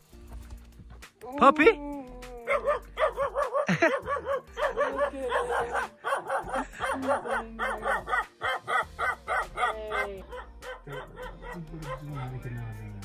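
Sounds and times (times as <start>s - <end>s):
puppy barking and yipping: 2.4s - 12.4s.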